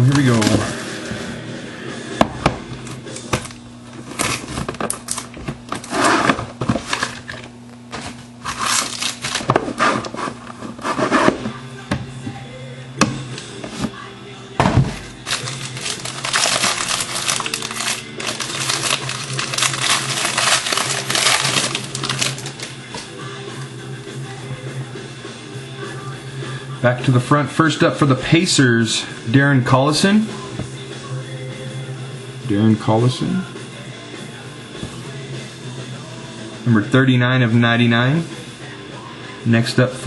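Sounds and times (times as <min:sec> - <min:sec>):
wrapping crinkling and crackling: 0:00.0 - 0:01.1, 0:06.8 - 0:10.9, 0:15.2 - 0:22.8.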